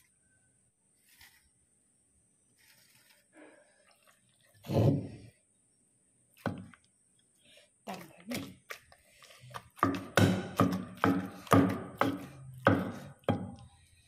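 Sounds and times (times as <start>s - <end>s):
pestle knocking and scraping: 6.4s - 6.8s, 8.3s - 13.8s.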